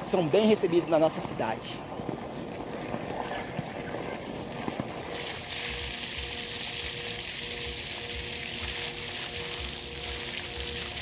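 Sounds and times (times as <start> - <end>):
water pouring from pipe and splashing: 5.1 - 11.0.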